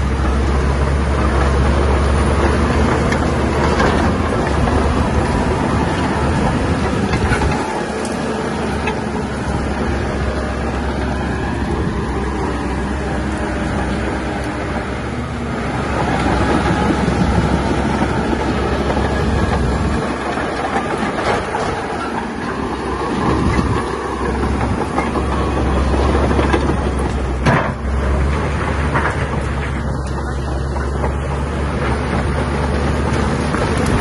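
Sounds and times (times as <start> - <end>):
diesel engine clattering: 0.0 - 34.0.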